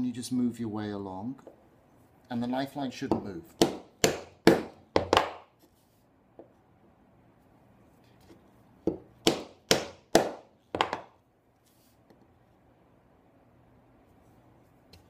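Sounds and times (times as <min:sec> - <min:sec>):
mallet striking chisel: 0:03.1 - 0:05.5, 0:08.9 - 0:11.1.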